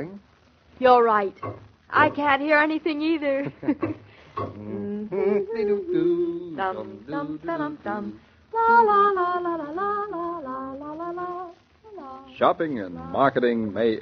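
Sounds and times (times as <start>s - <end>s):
woman humming and singing: 4.4s - 12.4s.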